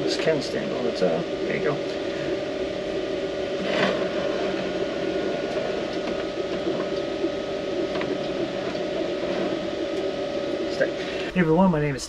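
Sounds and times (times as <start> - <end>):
steady two-tone mechanical hum: 0.0 - 12.0.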